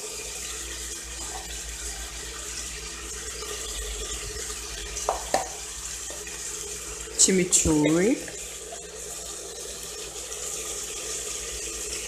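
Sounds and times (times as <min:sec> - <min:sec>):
meat sizzling in oil: 0:00.9 - 0:09.8.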